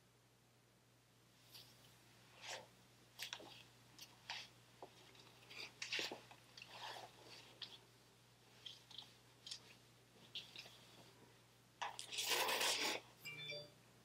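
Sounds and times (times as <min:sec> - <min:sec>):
clothing rustling on yoga mat: 0:01.4 - 0:11.5.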